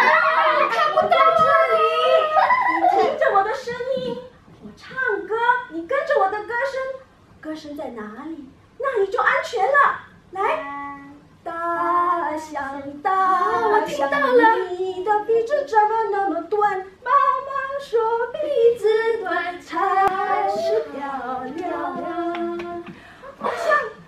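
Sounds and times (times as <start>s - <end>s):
women singing unaccompanied: 10.4s - 24.0s.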